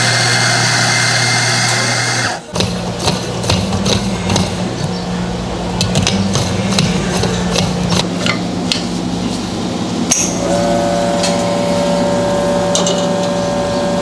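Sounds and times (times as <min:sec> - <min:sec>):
espresso machine pump humming: 0:00.0 - 0:04.4.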